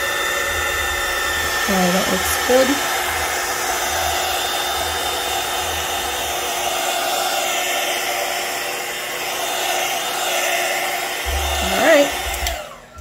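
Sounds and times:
heat gun blowing: 0:00.0 - 0:13.0.

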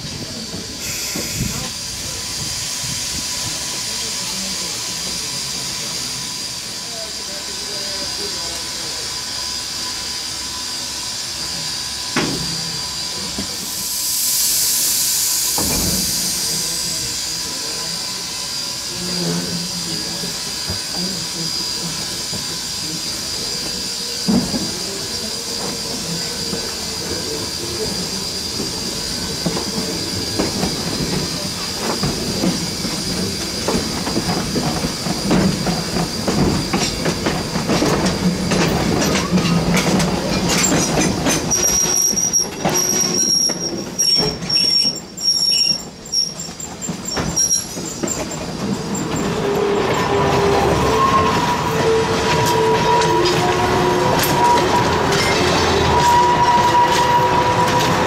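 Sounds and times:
train wheels clicking on rails: 0:00.0 - 0:58.0
wheel flange squeal: 0:38.2 - 0:58.0.

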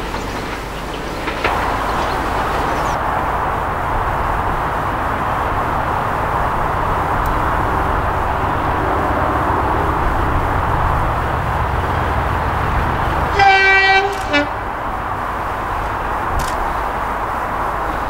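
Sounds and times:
train rumble: 0:00.0 - 0:18.0
locomotive two-tone horn: 0:13.2 - 0:14.8.

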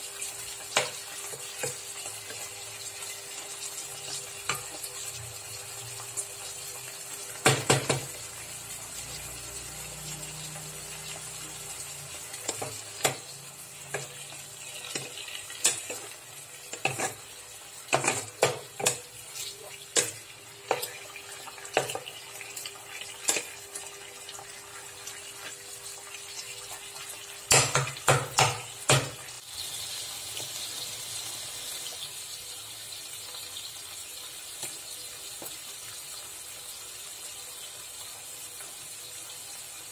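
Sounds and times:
chicken sizzling in frying pan: 0:00.0 - 0:39.9.

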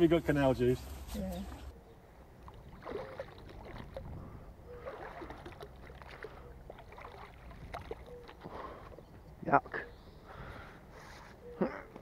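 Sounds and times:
water splashing and sloshing: 0:02.3 - 0:09.3.

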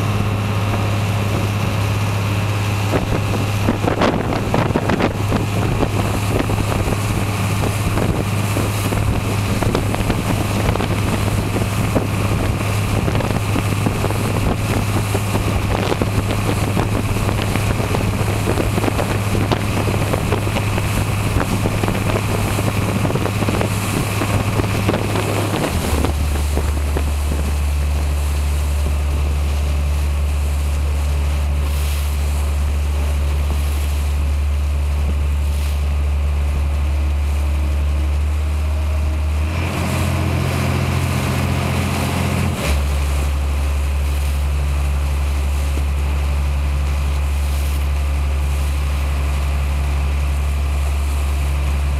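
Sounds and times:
wind buffeting microphone: 0:00.0 - 0:31.7
boat engine droning: 0:00.0 - 0:51.9
water rushing along hull: 0:00.0 - 0:51.9.

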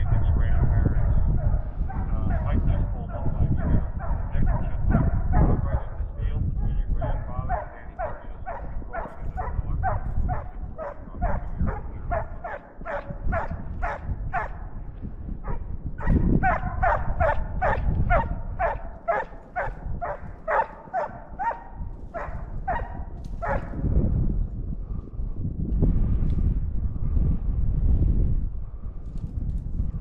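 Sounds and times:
hound baying short barks: 0:07.0 - 0:14.5, 0:15.4 - 0:23.7.

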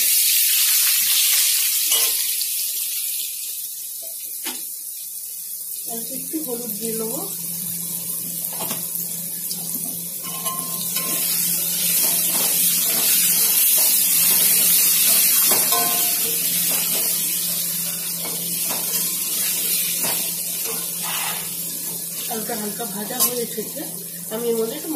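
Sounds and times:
potatoes sizzling in hot oil: 0:00.0 - 0:24.9
metal spatula scraping a pan: 0:10.2 - 0:17.2, 0:20.0 - 0:21.6, 0:23.1 - 0:23.5.

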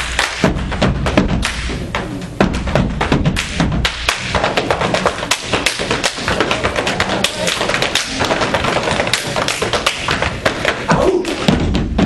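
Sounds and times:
foot stomps on stage floor: 0:02.4 - 0:12.0.

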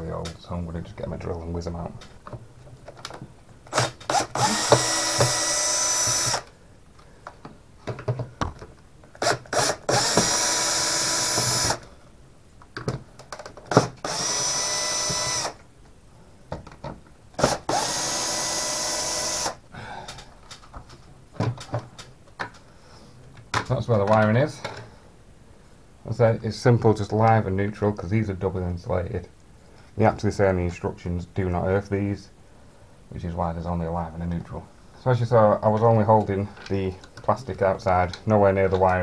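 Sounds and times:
cordless drill whirring: 0:03.7 - 0:06.5, 0:09.2 - 0:11.8, 0:13.7 - 0:15.6, 0:17.4 - 0:19.6
drill bit clicks: 0:03.7 - 0:06.5, 0:09.2 - 0:11.8, 0:13.7 - 0:15.6, 0:17.4 - 0:19.6.

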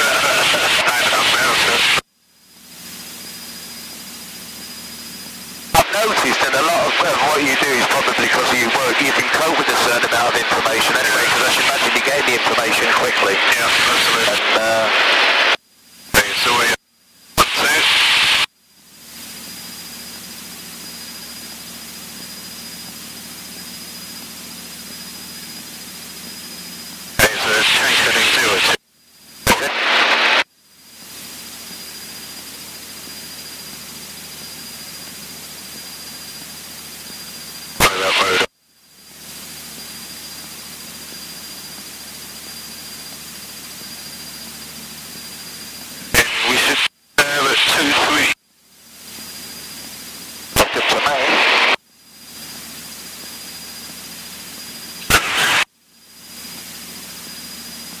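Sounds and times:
intercom hiss: 0:00.0 - 0:02.0, 0:05.7 - 0:16.8, 0:17.4 - 0:18.5, 0:27.1 - 0:28.8, 0:29.4 - 0:30.5, 0:37.7 - 0:38.5, 0:45.6 - 0:48.4, 0:50.5 - 0:51.8, 0:55.0 - 0:55.7
faint low engine drone: 0:00.0 - 0:58.0
thin high whine: 0:00.0 - 0:58.0.

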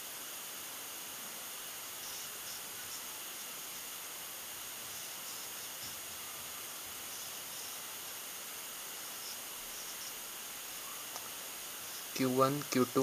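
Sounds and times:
background recording hiss: 0:00.0 - 0:13.0
marker scratching on paper: 0:02.0 - 0:03.2, 0:04.8 - 0:08.2, 0:09.0 - 0:10.2, 0:11.8 - 0:12.2.

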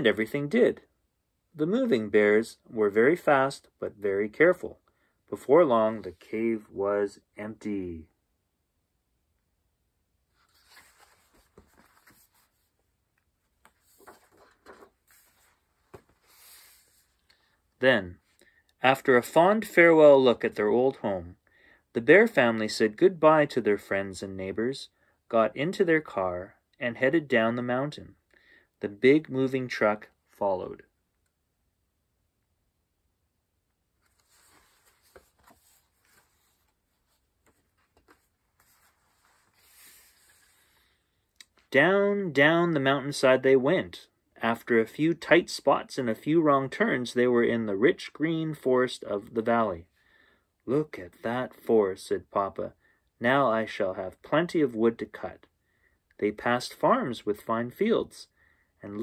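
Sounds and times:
paper pages rustling: 0:10.3 - 0:17.2, 0:34.0 - 0:40.9.

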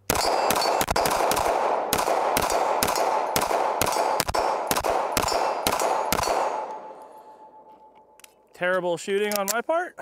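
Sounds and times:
pistol shots with echo: 0:00.0 - 0:07.6.

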